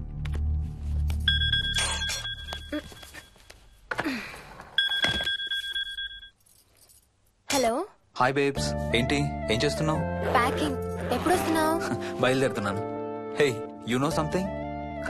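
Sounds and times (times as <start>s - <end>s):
phone ringtone two high tones: 1.3s - 3.1s
soft music: 8.2s - 15.0s.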